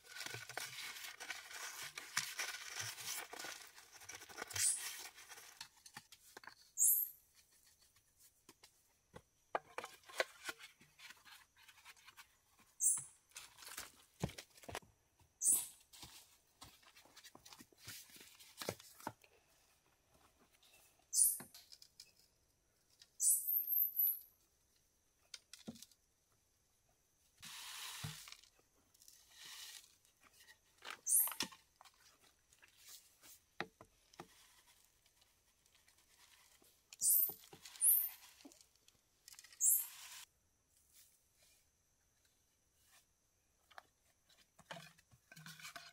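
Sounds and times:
soil pouring with dry hiss: 27.4s - 28.6s, 29.2s - 30.0s.

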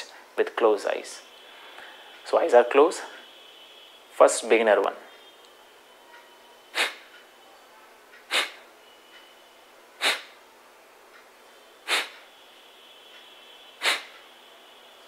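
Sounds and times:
forceful nasal exhalations: 6.7s - 7.1s, 8.3s - 8.7s, 10.0s - 10.4s, 11.8s - 12.3s, 13.8s - 14.2s.

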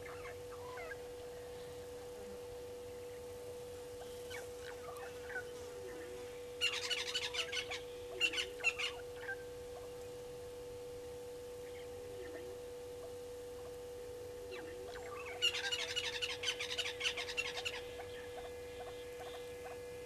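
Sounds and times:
parrots calling: 0.0s - 1.0s, 6.6s - 9.9s, 14.5s - 19.8s
steady hum: 0.0s - 20.0s.

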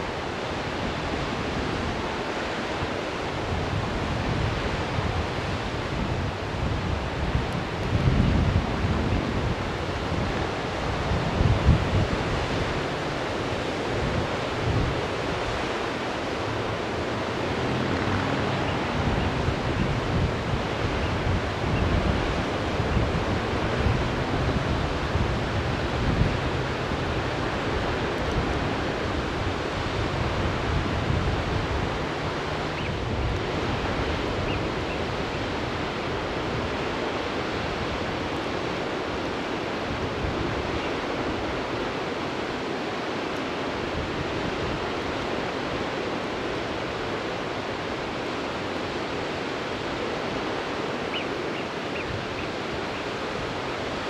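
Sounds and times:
wind buffeting microphone: 0.0s - 43.0s
river rushing: 0.0s - 54.0s.

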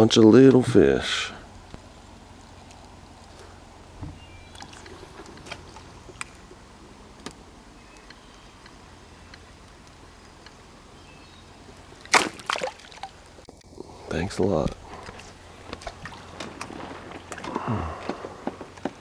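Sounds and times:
quiet water sounds: 0.0s - 19.0s
loud water splash: 12.1s - 13.1s.

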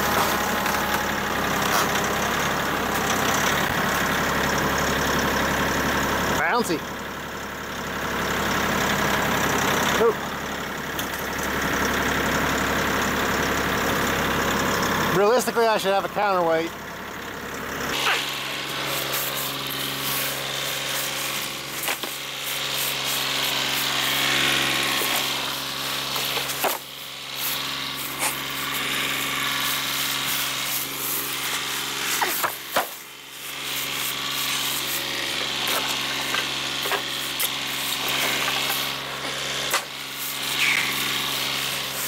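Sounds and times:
tractor diesel engine idling: 0.0s - 42.0s
rough hissing noise: 18.5s - 32.6s.

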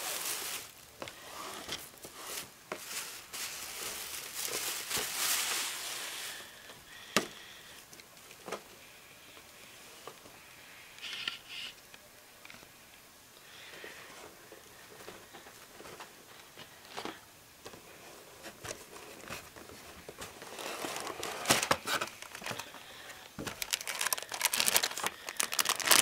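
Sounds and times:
cardboard boxes rustling and scraping: 0.0s - 6.2s, 17.9s - 22.6s.

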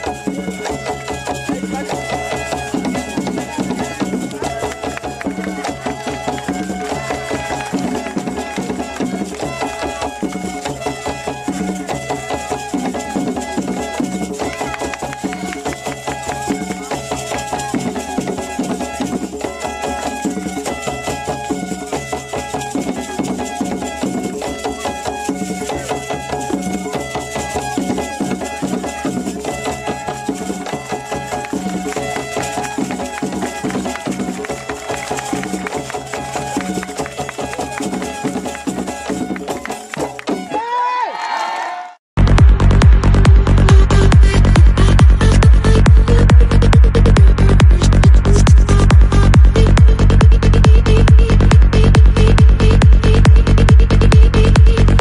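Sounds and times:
fast dense drumming: 42.2s - 55.0s.

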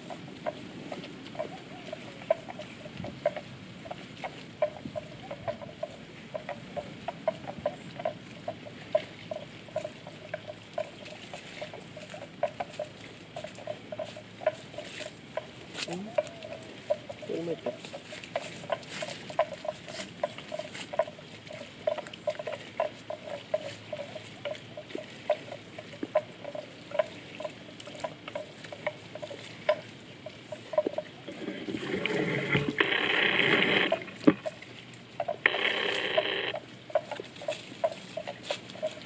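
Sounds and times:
animal clucking calls: 0.0s - 39.0s
hissing buzz: 32.3s - 34.0s.

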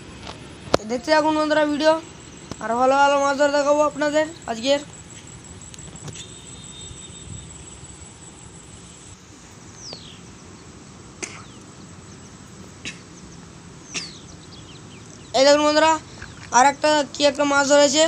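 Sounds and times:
steady low hiss: 0.0s - 18.0s
sharp clicks: 5.1s - 6.4s.

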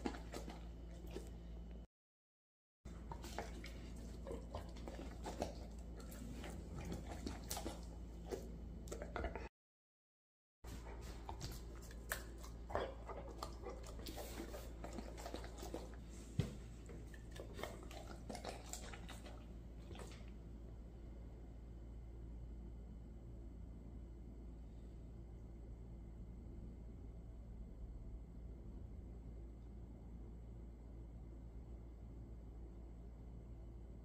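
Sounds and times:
dog chewing food: 0.0s - 1.5s, 2.9s - 9.5s, 10.7s - 20.4s
steady low hum: 2.9s - 9.5s.

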